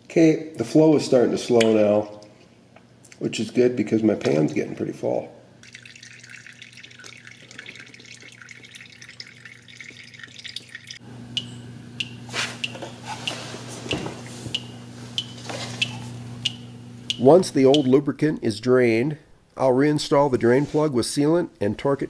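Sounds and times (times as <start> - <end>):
fluid trickling into a pan: 5.6 - 11.0
drips plinking: 5.6 - 13.4, 14.5 - 18.0.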